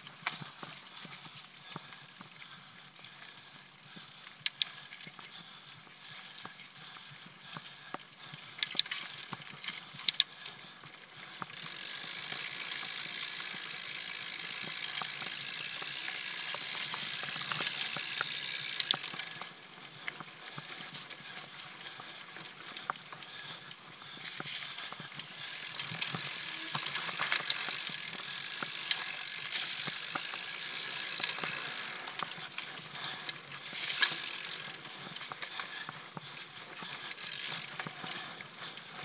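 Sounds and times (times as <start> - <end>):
bike rattles and clicks: 0.0 - 39.0
freewheel ratchet buzz: 11.5 - 19.4, 25.4 - 32.2, 33.7 - 34.8, 37.1 - 37.8.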